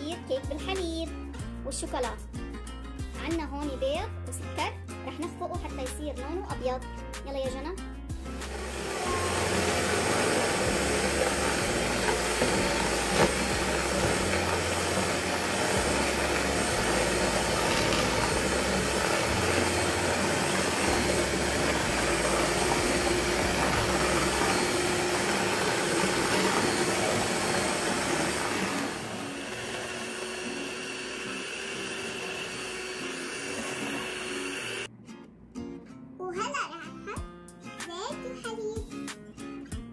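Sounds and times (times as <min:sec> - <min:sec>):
electric hand mixer whirring: 0:08.4 - 0:34.9.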